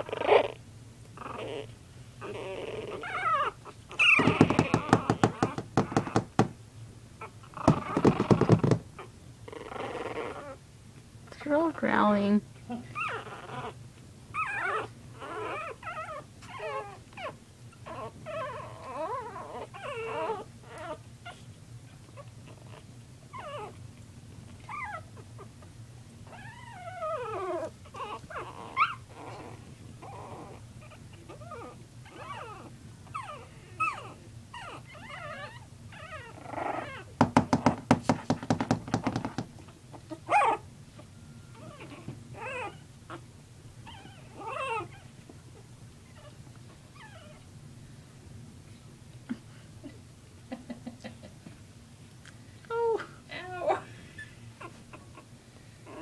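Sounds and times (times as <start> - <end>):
puppies whimpering and yelping: 0.0 - 0.6, 1.2 - 6.4, 7.2 - 10.6, 12.7 - 23.8, 24.4 - 37.2, 39.6 - 47.5, 52.8 - 56.0.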